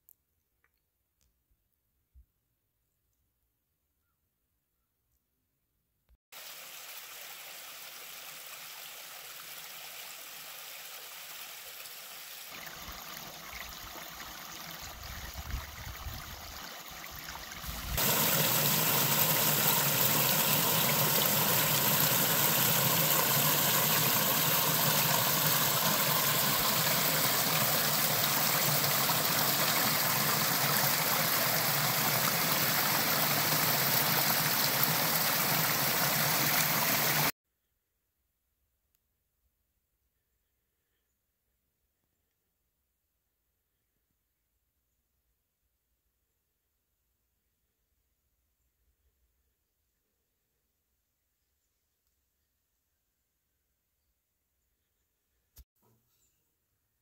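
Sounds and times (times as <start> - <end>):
waterfall splashing into pool: 6.4 - 15.4, 16.4 - 37.3.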